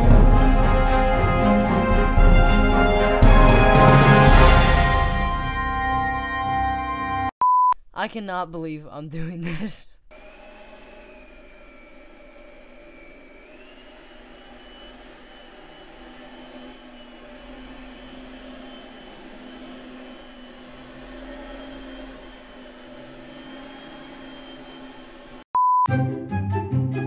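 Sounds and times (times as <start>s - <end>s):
vacuum cleaner motor whine: 10.1s - 25.4s.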